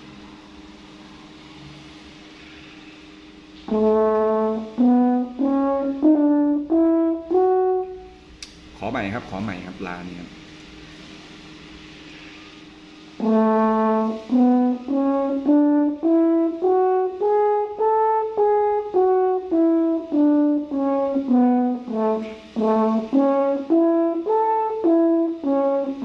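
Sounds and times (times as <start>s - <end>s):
french horn playing a scale: 3.6s - 8.3s, 13.1s - 26.0s.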